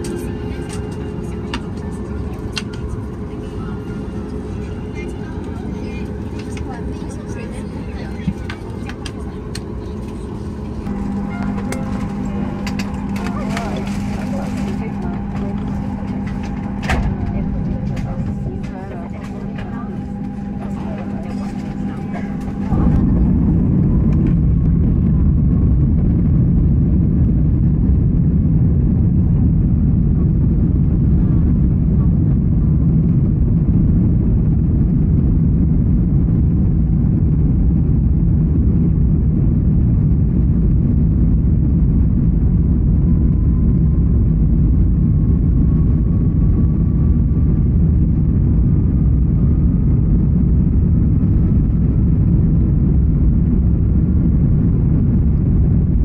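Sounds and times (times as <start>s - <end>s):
faint rising whine: 0.0s - 56.0s
jet engines at take-off thrust: 0.0s - 56.0s
loud runway rumble: 0.0s - 56.0s.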